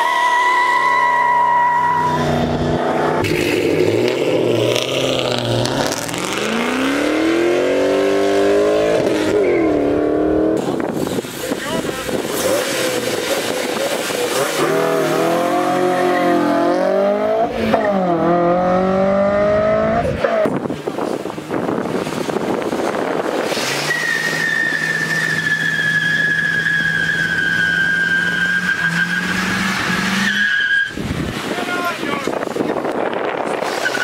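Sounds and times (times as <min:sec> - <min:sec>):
tire squeal: 0:00.0 - 0:03.4, 0:08.6 - 0:10.0, 0:23.4 - 0:31.3, 0:33.4 - 0:34.0
car engine revving hard: 0:01.2 - 0:20.6, 0:21.8 - 0:31.5.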